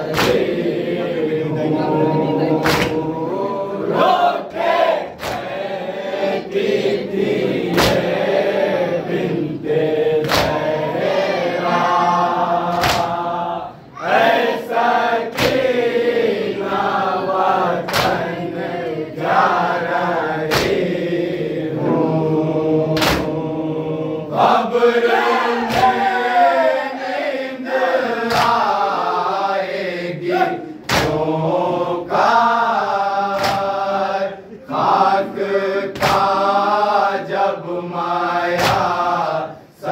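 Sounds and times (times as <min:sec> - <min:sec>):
men chanting in chorus: 0:00.0 - 0:39.9
hands beating chests: 0:02.6 - 0:03.0, 0:12.7 - 0:13.2, 0:33.3 - 0:33.7.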